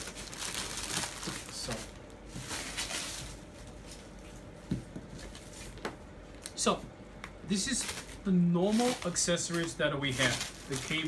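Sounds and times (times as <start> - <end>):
plastic packaging crinkling: 0.0 - 4.2, 7.5 - 11.0.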